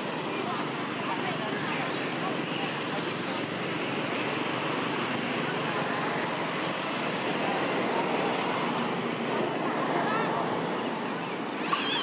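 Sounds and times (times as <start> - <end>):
outdoor background rushing hiss: 0.0 - 12.0.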